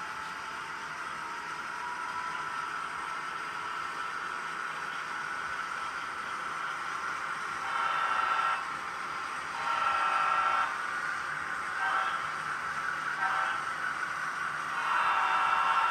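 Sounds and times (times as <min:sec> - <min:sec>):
model trains running: 0:00.0 - 0:15.9
model locomotive horn blasts: 0:07.6 - 0:08.6, 0:09.5 - 0:10.8, 0:11.8 - 0:12.3, 0:13.2 - 0:13.7, 0:14.7 - 0:15.9.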